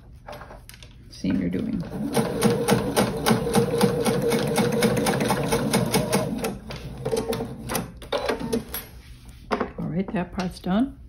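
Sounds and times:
sewing machine stitching: 1.9 - 8.6.

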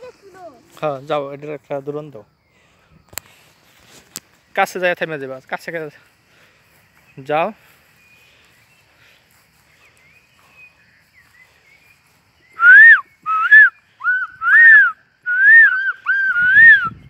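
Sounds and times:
faint chirps: 0.0 - 17.0
person whistling short notes: 12.6 - 17.0.

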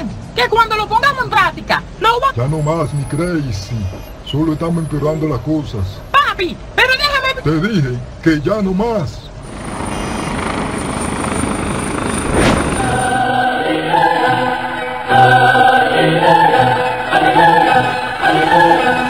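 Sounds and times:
rising whoosh with whistle: 12.2 - 15.1
choir-like singing: 12.5 - 19.0.

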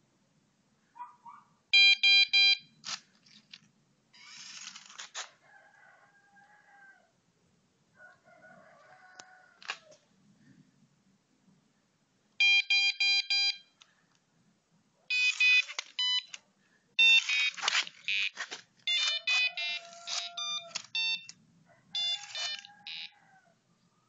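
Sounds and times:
electronic buzzer beeps: 15.1 - 16.3, 17.0 - 21.3, 22.0 - 23.1.

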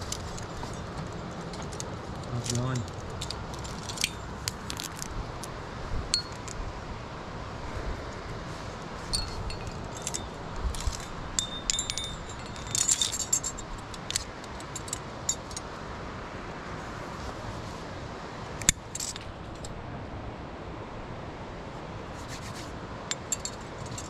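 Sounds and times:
carabiners jangling: 0.0 - 5.1, 9.2 - 15.7, 18.6 - 19.7, 23.1 - 24.0.

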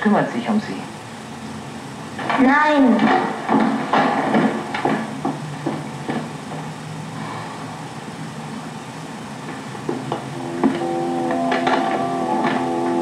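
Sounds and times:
film soundtrack hiss: 0.0 - 13.0
low hum: 0.0 - 13.0
soft knocks: 3.0 - 6.7, 9.4 - 12.8
music with held notes: 10.1 - 13.0.

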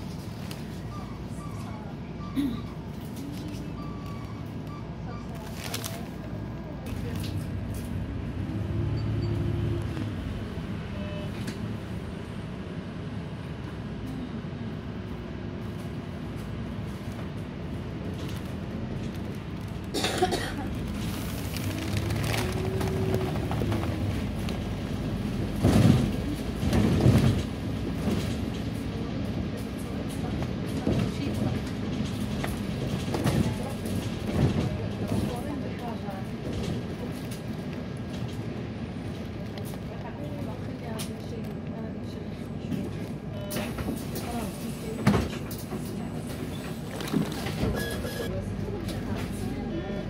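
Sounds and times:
road noise: 0.0 - 50.0
vehicle engine drone: 17.4 - 26.6.

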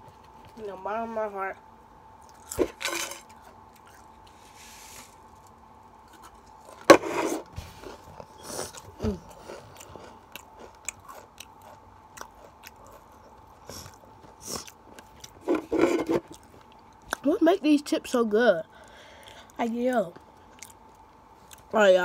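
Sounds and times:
chips crunched and chewed: 2.2 - 4.4, 5.3 - 6.9, 7.8 - 15.5
rustle of crumbs: 4.1 - 5.6.

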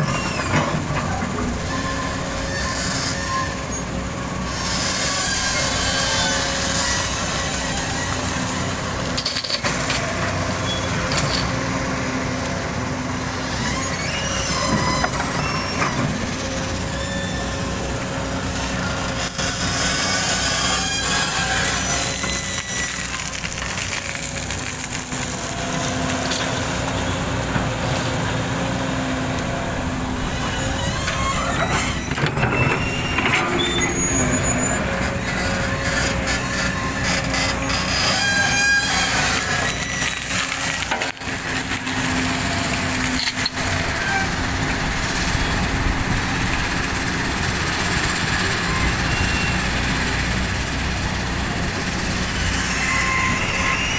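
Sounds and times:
excavator diesel engine running: 0.0 - 53.9.

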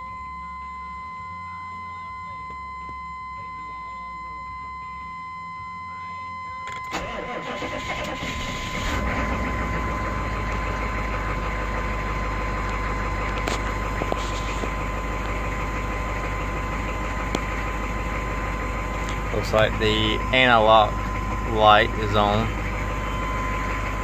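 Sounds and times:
diesel engine idling: 0.4 - 24.0
starter cranking engine: 6.8 - 24.0.

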